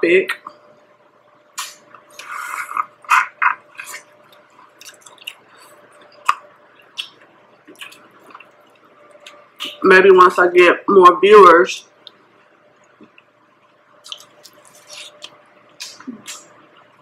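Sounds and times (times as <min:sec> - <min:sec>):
faint steady hum: 0:00.0 - 0:17.0
wet chewing and mouth sounds: 0:01.6 - 0:09.8, 0:14.0 - 0:17.0.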